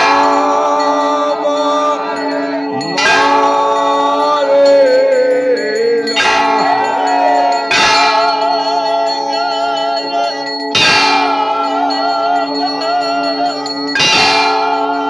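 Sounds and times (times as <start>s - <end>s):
loud bell strike: 0.0s - 15.0s
temple bells ringing: 0.0s - 15.0s.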